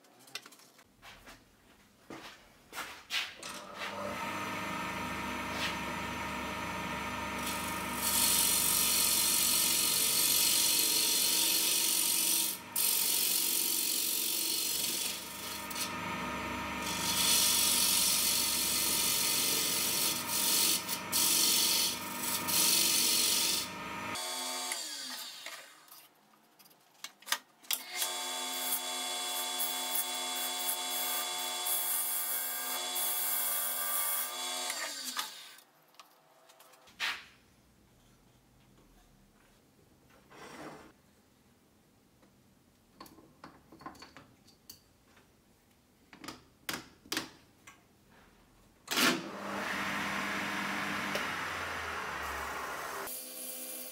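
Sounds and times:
wood lathe running: 4.6 - 24.6, 50.2 - 53.2.

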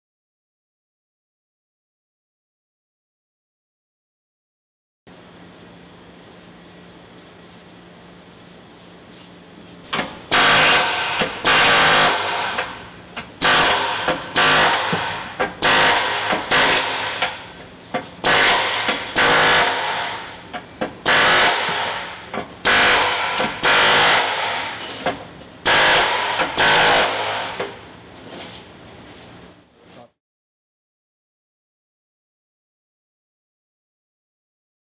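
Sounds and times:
air hammer on sheet metal: 10.0 - 17.6, 18.2 - 25.0, 25.6 - 27.8.

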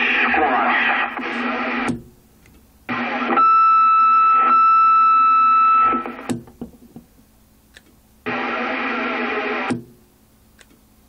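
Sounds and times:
radio static: 0.0 - 2.0, 2.9 - 3.6, 8.2 - 9.7.

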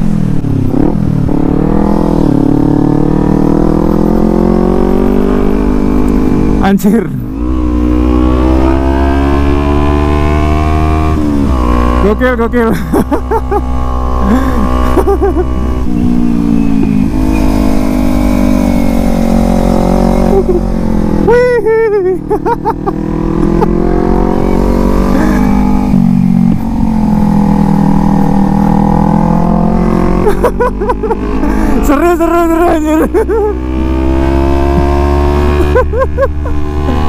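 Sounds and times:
motorcycle engine running: 0.0 - 37.0.

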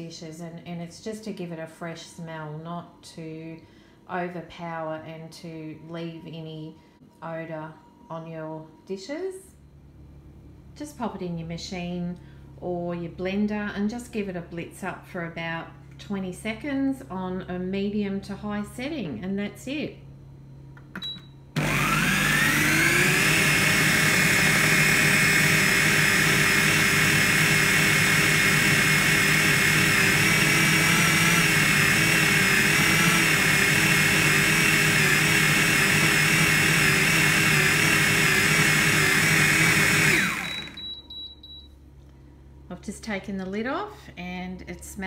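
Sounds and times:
blender motor whining: 21.6 - 40.9
short beeps: 40.5 - 41.8.

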